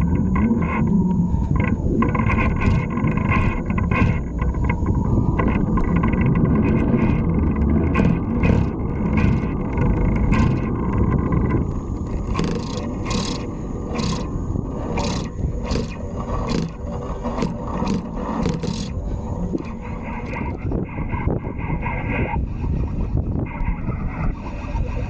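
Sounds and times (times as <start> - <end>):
wind rumble on microphone: 0.0 - 25.0
fly reel scraping and clicking: 12.1 - 19.0.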